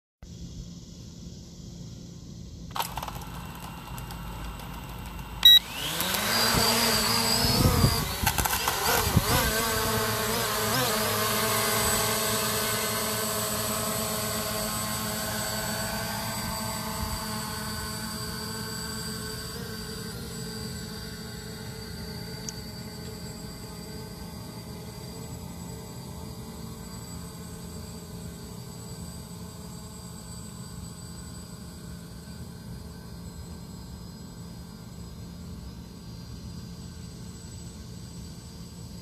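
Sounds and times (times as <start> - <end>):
drone propellers whining: 2.7 - 33.5
short beep: 5.4 - 5.7.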